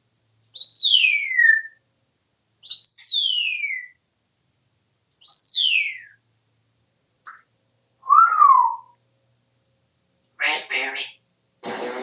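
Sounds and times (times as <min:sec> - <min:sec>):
parrot whistling: 0:08.0 - 0:09.0.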